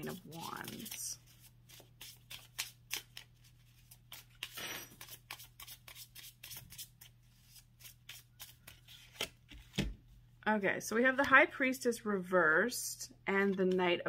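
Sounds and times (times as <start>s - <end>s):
cards rustling: 0.1s - 9.9s.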